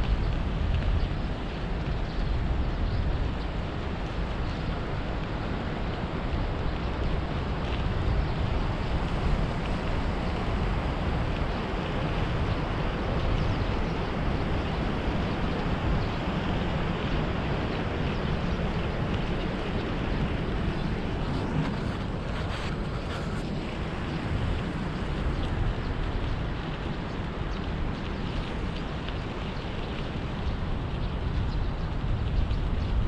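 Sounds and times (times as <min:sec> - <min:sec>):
wind buffeting microphone: 0:00.0 - 0:33.0.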